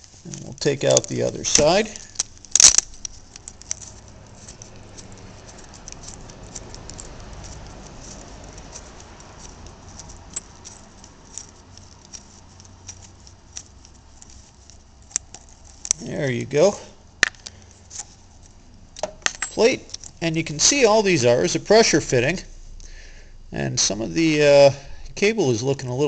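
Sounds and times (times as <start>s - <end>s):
metal clicks and rattles: 0.0s - 16.1s.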